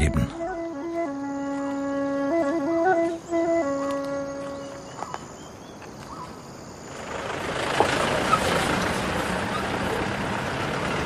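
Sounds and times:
held flute note: 0:00.0 - 0:05.0
motor vehicle rushing: 0:06.8 - 0:11.0.

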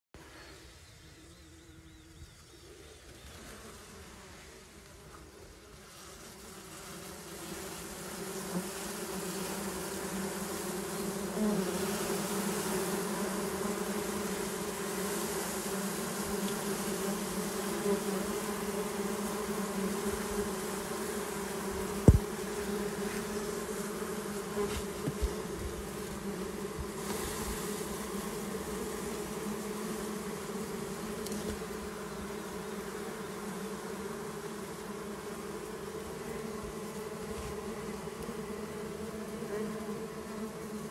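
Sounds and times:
bees buzzing: 0:00.2 - 0:40.9
sharp knock: 0:22.0 - 0:22.3.

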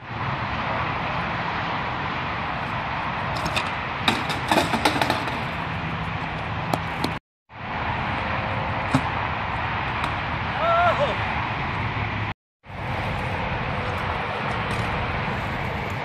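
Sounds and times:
outdoor background noise: 0:00.0 - 0:16.0
bike crashing on concrete: 0:03.3 - 0:05.7.

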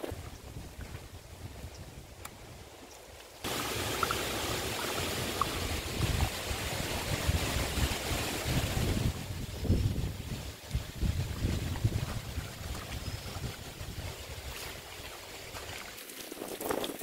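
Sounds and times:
water draining through valve: 0:03.5 - 0:06.6.

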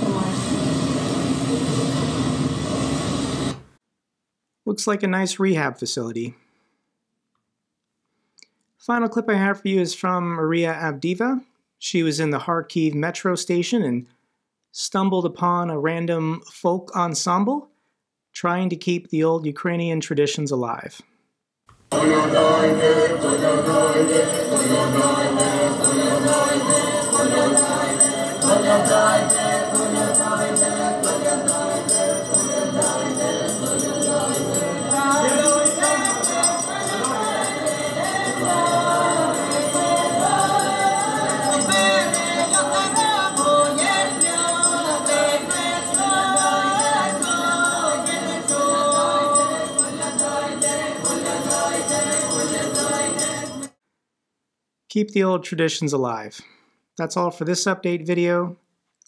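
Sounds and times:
steady beat: 0:21.9 - 0:53.0
folk choir singing: 0:21.9 - 0:53.7.

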